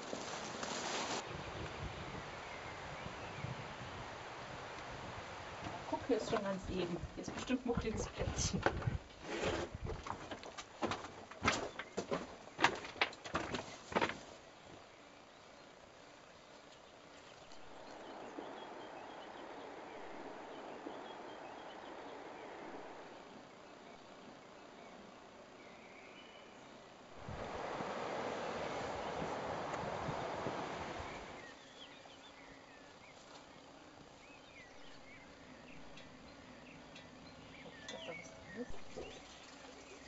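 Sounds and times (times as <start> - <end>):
rustling foliage: 0.0 - 40.0
steady rushing hiss: 0.0 - 40.0
steady wind: 0.0 - 40.0
faint songbird chirps: 1.2 - 4.2, 14.4 - 27.2, 28.3 - 40.0
wind buffeting microphone: 1.2 - 10.3, 27.2 - 31.6.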